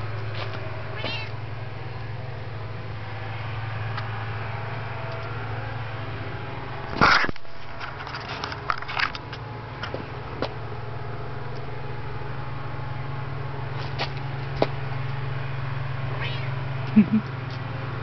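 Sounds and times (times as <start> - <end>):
cat meowing: 1.0 - 1.4.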